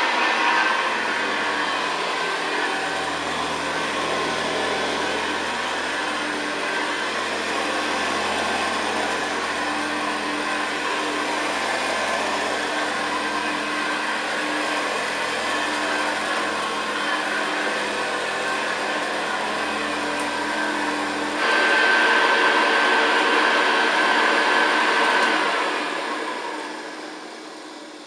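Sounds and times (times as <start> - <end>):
vacuum cleaner on carpet: 0.0 - 28.0.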